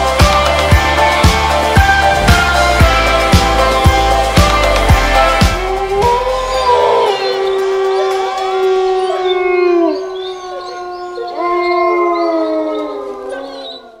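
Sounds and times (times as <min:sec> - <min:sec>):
wolf howling: 0:02.0 - 0:14.0.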